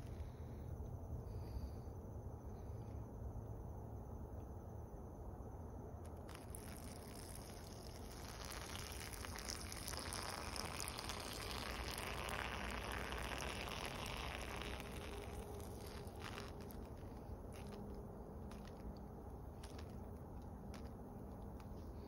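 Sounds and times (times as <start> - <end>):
urine spattering on leaves: 6.3 - 18.8.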